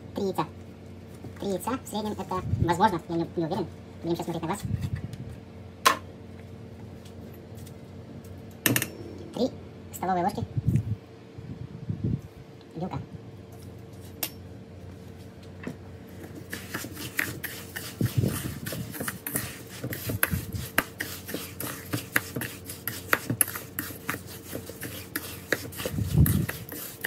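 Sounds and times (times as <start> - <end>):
metal spoon scraping in steel bowl: 16.5 - 27.0.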